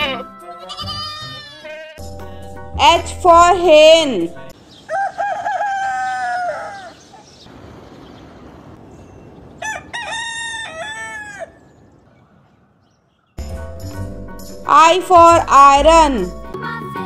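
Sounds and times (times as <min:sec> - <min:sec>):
rooster crowing: 0:04.8 - 0:07.0, 0:09.6 - 0:11.7.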